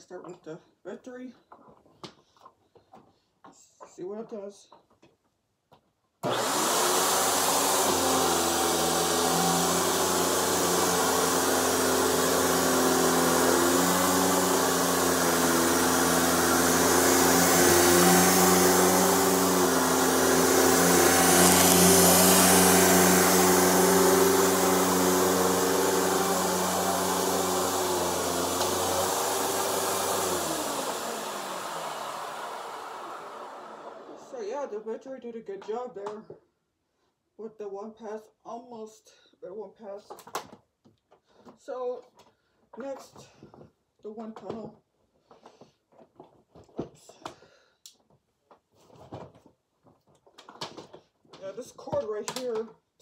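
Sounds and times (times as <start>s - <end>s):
upright vacuum cleaner running: 6.2s - 34.4s.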